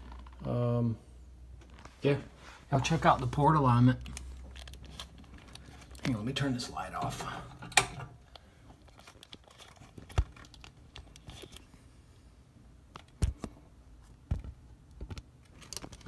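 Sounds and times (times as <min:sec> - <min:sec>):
handling clicks and knocks: 0:04.0 - 0:06.4, 0:07.0 - 0:11.7.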